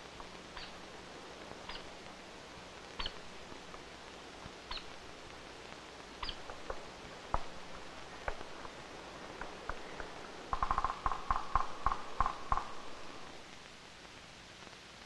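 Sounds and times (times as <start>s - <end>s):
woodpecker pecking on wood: 6.2s - 13.0s.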